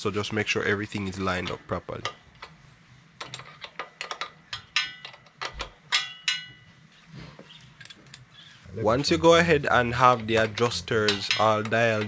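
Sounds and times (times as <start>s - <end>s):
hand tools clinking on metal: 3.2s - 6.7s, 9.8s - 12.0s.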